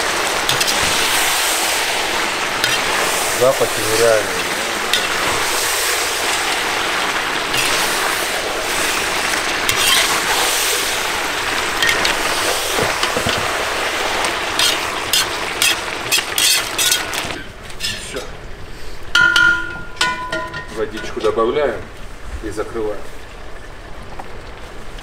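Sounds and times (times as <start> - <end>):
meat sizzling in a pot: 0.0 - 18.2
metal spatula scraping a pot: 0.5 - 0.9, 2.6 - 3.0, 4.9 - 5.4, 7.5 - 7.9, 9.7 - 10.5, 14.5 - 18.3.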